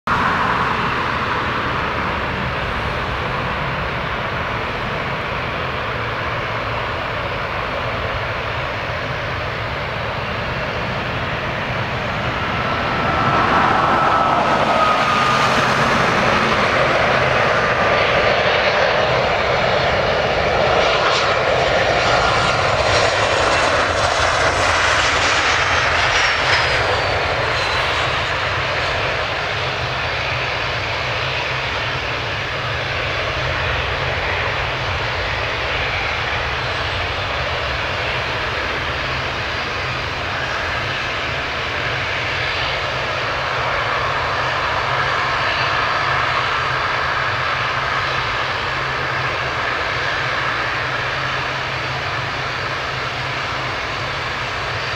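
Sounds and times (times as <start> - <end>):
jet airliner engines rushing: 0.1 - 54.9
high whine falling in pitch: 11.6 - 18.8.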